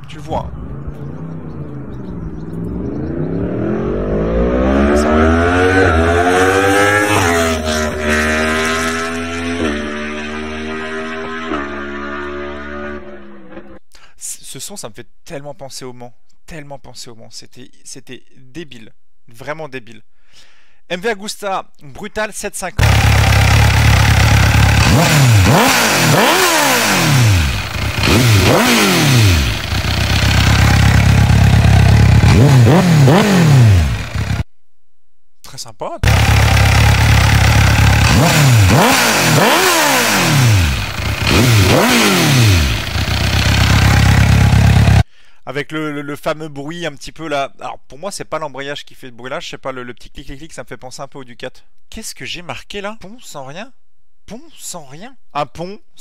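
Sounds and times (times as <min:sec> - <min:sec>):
motorcycle engine accelerating hard: 0:00.6 - 0:13.7, 0:22.8 - 0:34.4, 0:36.0 - 0:45.0.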